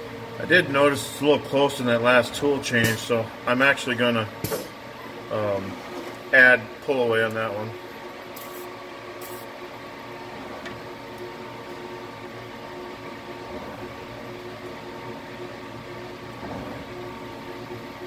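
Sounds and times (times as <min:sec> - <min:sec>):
lathe machine whine: 0:05.1 - 0:18.0
aerosol spray can hiss: 0:09.2 - 0:09.5.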